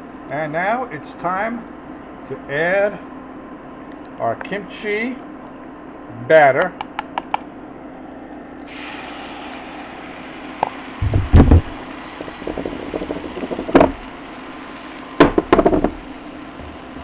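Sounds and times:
batter sizzling in a pan: 0:07.9 - 0:17.0
knocks against a pan: 0:11.0 - 0:14.0, 0:15.2 - 0:16.0.

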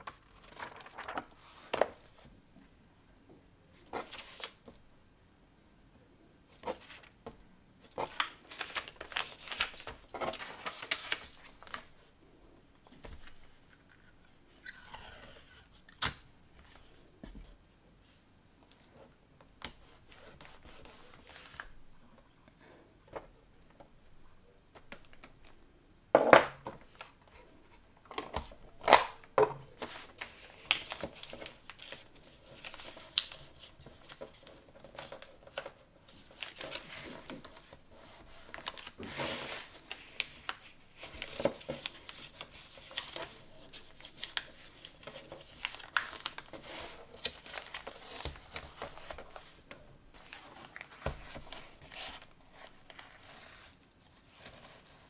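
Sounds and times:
paper rustling and crinkling: 0:00.0 - 0:02.4, 0:07.8 - 0:12.1, 0:28.1 - 0:55.0.

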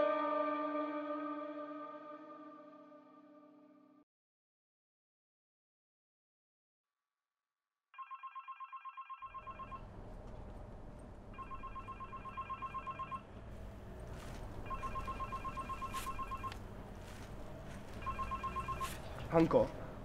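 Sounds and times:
mobile phone ringing: 0:08.0 - 0:09.9, 0:11.3 - 0:13.3, 0:14.6 - 0:16.6, 0:17.9 - 0:19.2.

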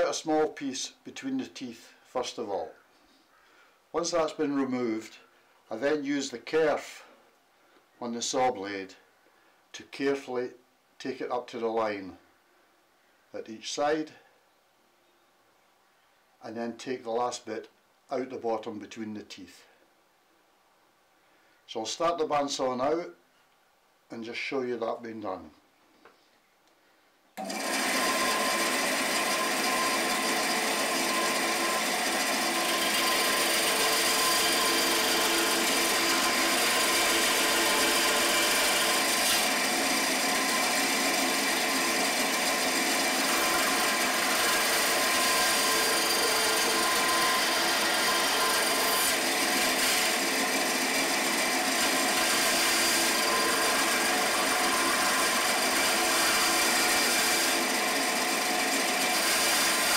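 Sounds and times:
bandsaw cutting plywood: 0:27.4 - 0:59.9.

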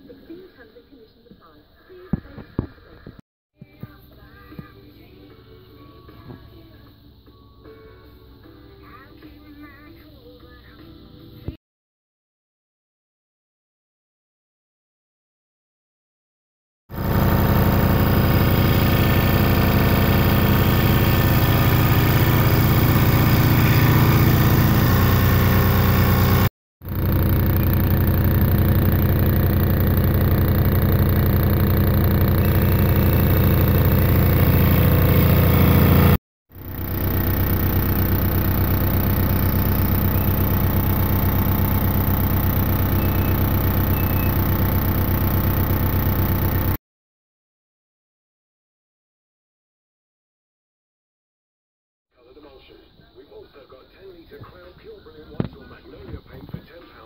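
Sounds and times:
scroll saw cutting wood: 0:17.0 - 0:46.8.

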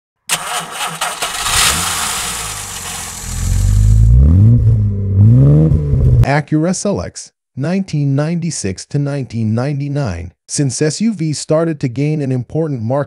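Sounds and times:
car engine starting and revving: 0:00.3 - 0:06.2.

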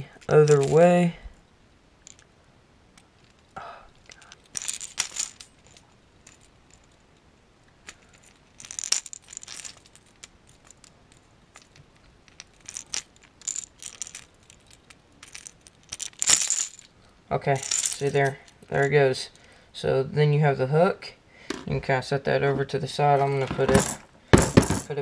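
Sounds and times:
small metal clicks and rattles: 0:00.0 - 0:01.0, 0:02.0 - 0:02.3, 0:03.0 - 0:18.8.

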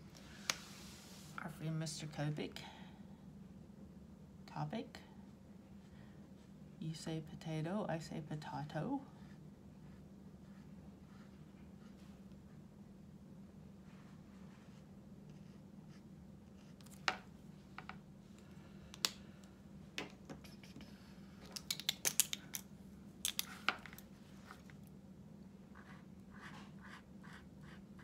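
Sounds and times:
plastic marker caps clicking: 0:21.4 - 0:24.0.

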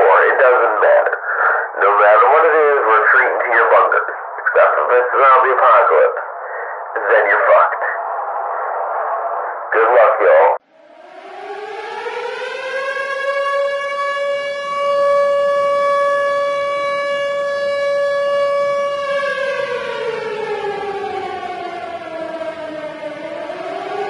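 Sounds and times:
siren wailing: 0:09.8 - 0:24.0.

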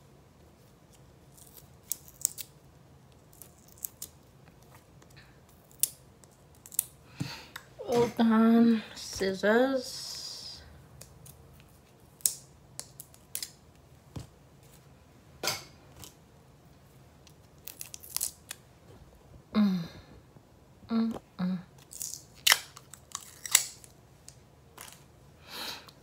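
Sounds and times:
person murmuring: 0:19.5 - 0:20.1, 0:20.9 - 0:21.7.

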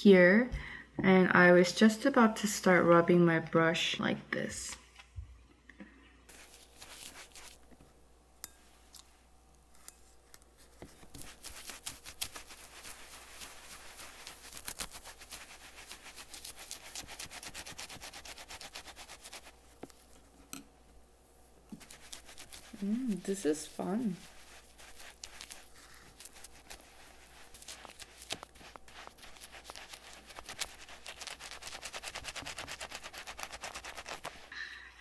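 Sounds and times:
brush scrubbing on rubber: 0:06.3 - 0:07.7, 0:10.6 - 0:20.2, 0:21.7 - 0:34.5.

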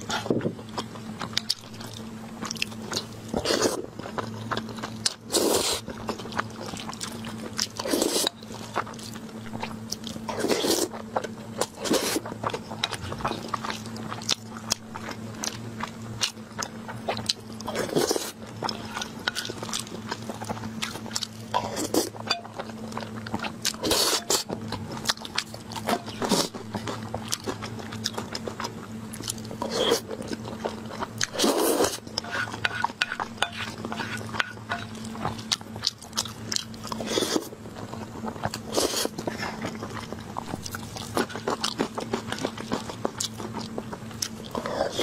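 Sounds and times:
faint low hum: 0:00.0 - 0:45.0
person slurping food: 0:31.3 - 0:32.5.

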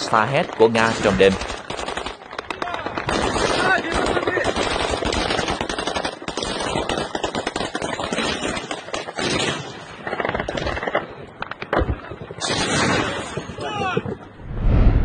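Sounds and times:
machine-gun fire: 0:00.7 - 0:10.9.

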